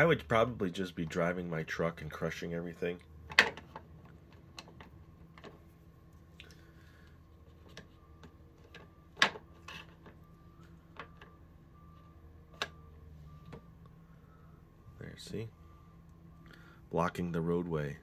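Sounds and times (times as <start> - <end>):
truck reversing alarm beeping: 6.5 - 18.0.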